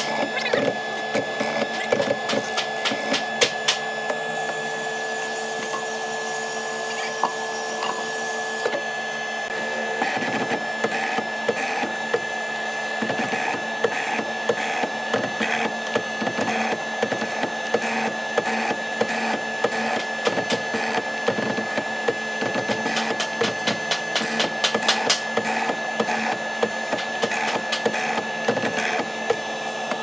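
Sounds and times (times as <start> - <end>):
chisel bit chopping wood: 0.0 - 3.9, 13.0 - 30.0
mortising machine motor humming: 0.0 - 30.0.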